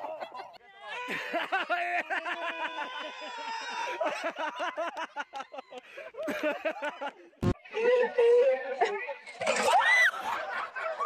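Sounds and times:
people laughing hard: 0.0 - 11.0.

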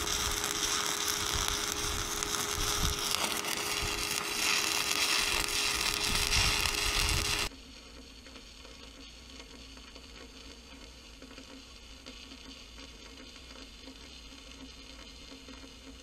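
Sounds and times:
welding arc crackling: 0.0 - 7.5.

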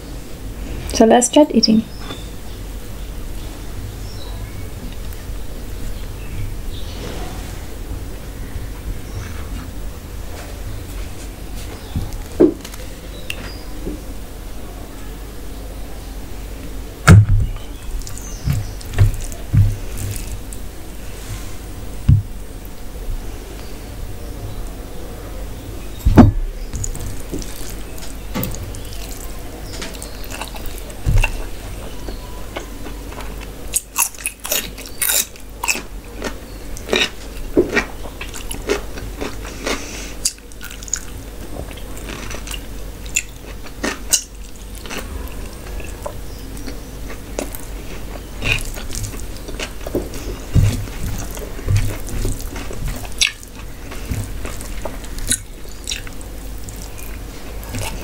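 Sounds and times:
chewing and wet mouth smacks: 26.8 - 31.5, 33.1 - 58.0.

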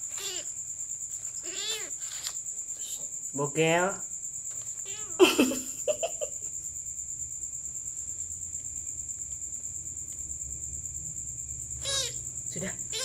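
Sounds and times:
crickets chirring: 0.0 - 13.0
kitten crying: 0.2 - 0.5, 1.4 - 1.9, 4.8 - 5.5, 11.8 - 12.2
kitten squeaks: 0.2 - 0.5, 1.4 - 2.0, 4.8 - 5.2, 11.8 - 12.2.

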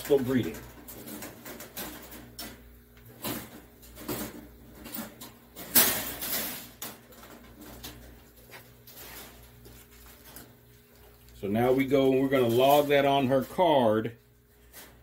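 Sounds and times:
wire cage rattling: 0.0 - 9.5.

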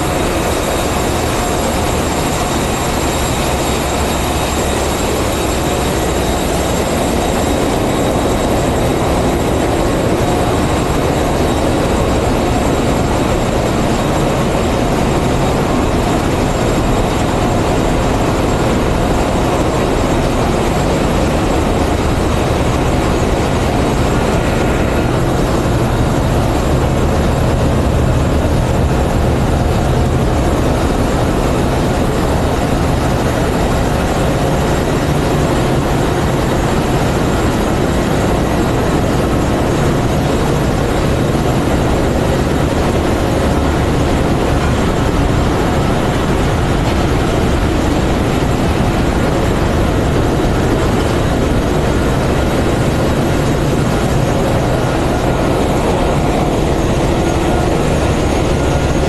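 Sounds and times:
engine room machinery rumble: 0.0 - 59.0.

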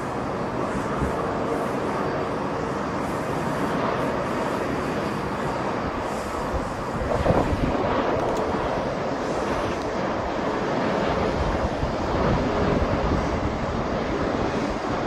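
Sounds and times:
jet engines rumbling: 0.0 - 15.0
wind buffeting microphone: 0.0 - 15.0.

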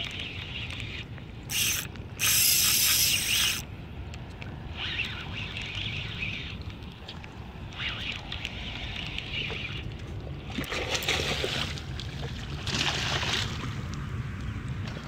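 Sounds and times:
fishing reel cranking: 0.1 - 3.6.

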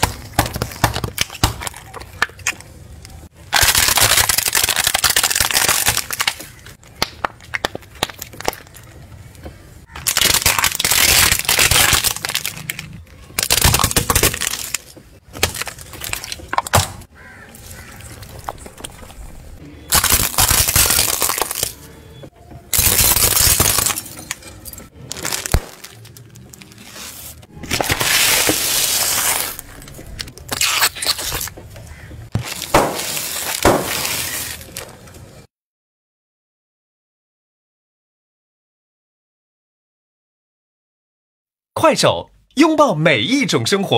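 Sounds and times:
tyre crushing plastic objects: 0.0 - 9.1, 9.9 - 21.9, 22.7 - 35.2.

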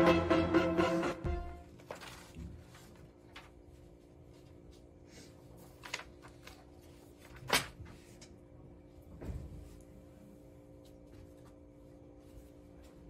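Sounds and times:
paper rustling: 1.7 - 8.3.

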